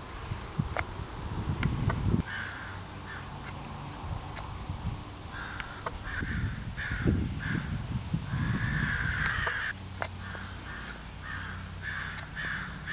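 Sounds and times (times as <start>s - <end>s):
crows cawing: 2.2s - 3.3s, 5.3s - 12.9s.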